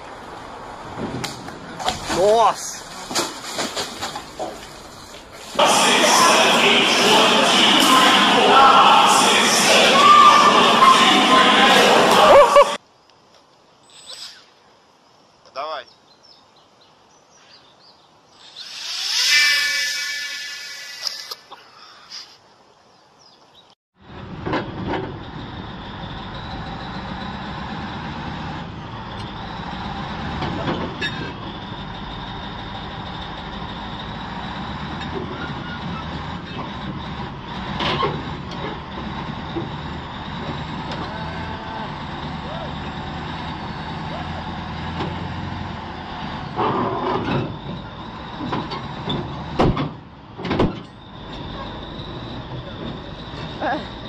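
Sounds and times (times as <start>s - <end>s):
bulldozer diesel engine running: 4.1s - 12.8s, 24.0s - 54.0s
steel tracks clanking: 5.5s - 12.8s, 24.1s - 54.0s.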